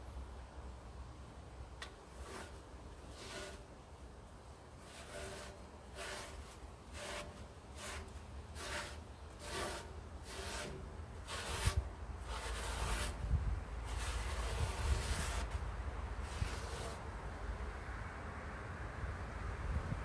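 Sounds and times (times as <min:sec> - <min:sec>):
rubbing strokes: 0:02.1 - 0:03.8, 0:04.8 - 0:17.1.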